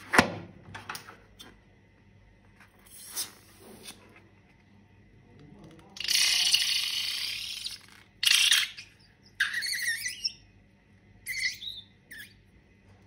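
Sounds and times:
air hissing out of balloon: 2.9 - 4.0
rubber balloon squeaks: 6.0 - 10.4.

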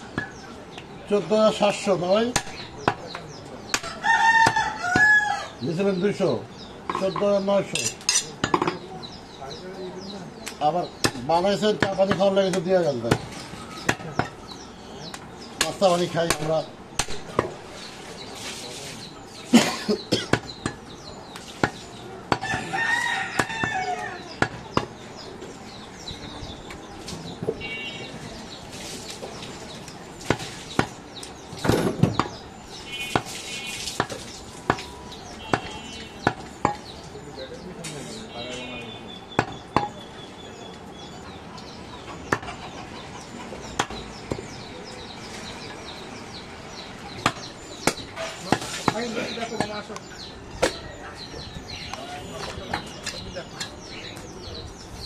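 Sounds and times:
birds chirping: 0.0 - 55.0
cleaver chopping meat on wood: 2.3 - 5.2, 10.5 - 14.4, 15.1 - 17.6, 20.2 - 22.7, 23.3 - 25.0, 30.2 - 31.0, 31.6 - 32.4, 33.0 - 33.4, 34.0 - 36.9, 39.3 - 40.0, 43.7 - 44.6, 47.1 - 49.9
rooster crowing: 3.8 - 5.6, 22.4 - 24.3.

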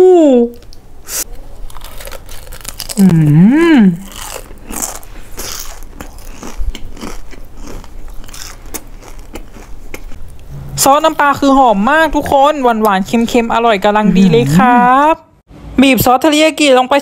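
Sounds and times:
person humming: 0.0 - 0.6, 3.0 - 4.0
crunching and chewing food: 0.6 - 10.4.

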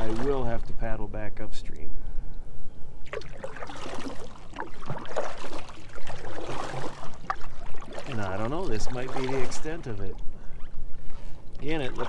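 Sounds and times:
water splashing around canoe hull: 0.0 - 0.7, 3.0 - 10.2, 10.9 - 12.0.

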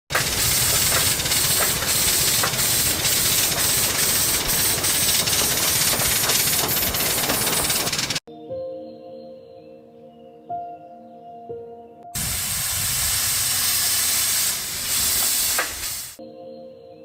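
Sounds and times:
steam locomotive hissing steam: 0.1 - 8.2, 12.2 - 16.2.

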